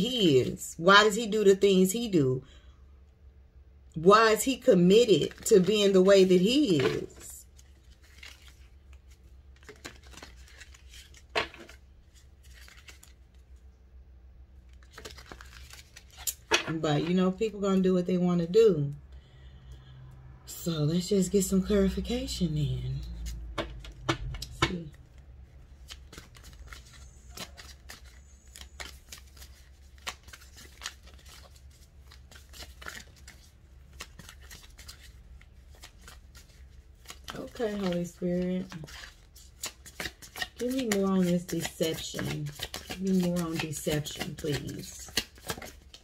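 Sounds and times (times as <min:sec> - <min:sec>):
cards shuffling: 0:04.4 - 0:13.6, 0:14.7 - 0:17.1, 0:23.0 - 0:46.0.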